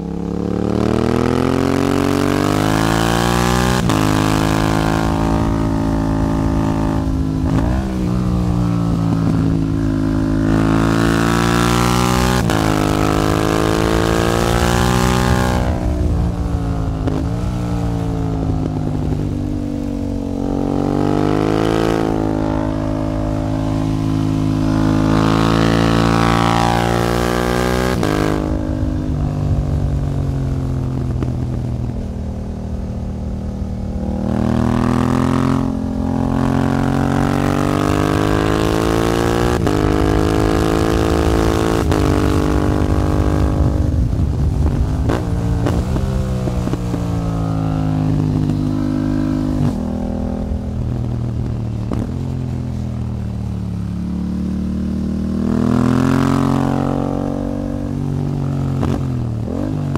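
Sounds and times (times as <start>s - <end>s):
motorcycle engine revving: 0.0s - 59.9s
wind noise: 0.0s - 59.9s.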